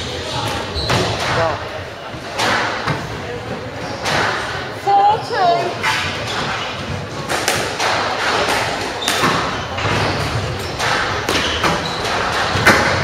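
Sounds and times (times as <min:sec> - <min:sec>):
shoes squeaking on court floor: 0:00.1 - 0:01.5, 0:03.5 - 0:04.2, 0:08.8 - 0:13.0
squash ball hits: 0:05.8 - 0:13.0.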